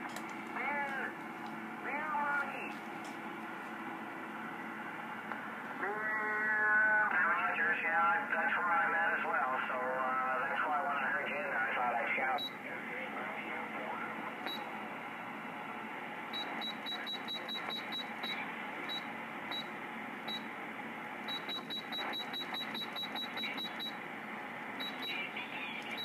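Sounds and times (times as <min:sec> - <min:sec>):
radio static hiss: 0:05.2 - 0:14.7, 0:22.9 - 0:26.0
short high radio beeps: 0:21.3 - 0:24.0, 0:24.8 - 0:25.3.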